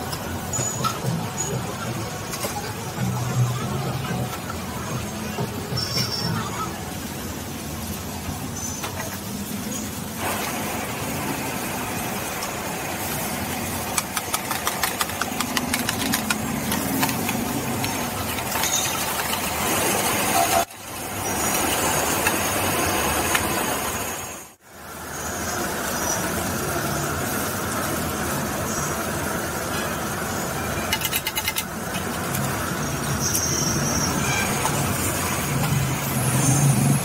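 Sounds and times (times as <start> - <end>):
gas burner roar: 7.0 - 37.0
metal spatula tapping and scraping: 13.9 - 19.5.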